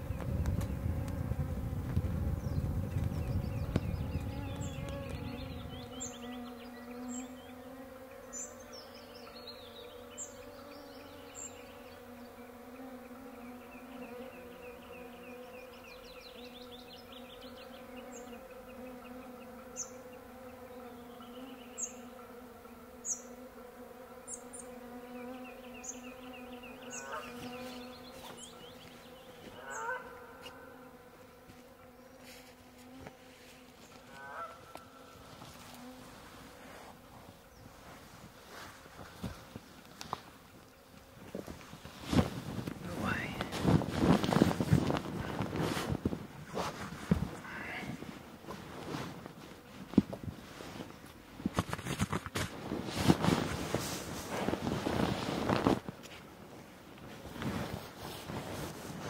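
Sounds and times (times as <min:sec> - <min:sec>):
mosquitoes whining: 0:02.2 - 0:37.7, 0:42.8 - 0:49.1
birds chirping and trilling: 0:02.3 - 0:32.2, 0:33.5 - 0:35.4, 0:47.3 - 0:48.0.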